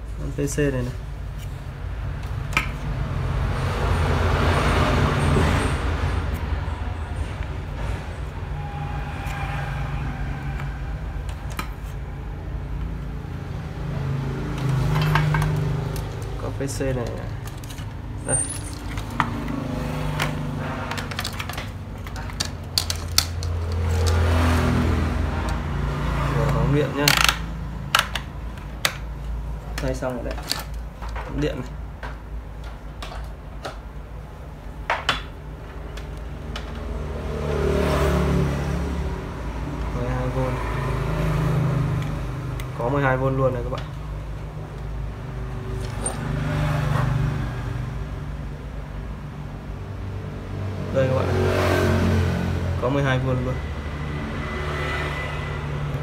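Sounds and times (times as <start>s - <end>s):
passing motor vehicle: 1.1s - 30.2s, 35.2s - 56.0s
clicks and taps of tools: 2.2s - 2.9s, 26.5s - 29.1s, 34.9s - 36.9s.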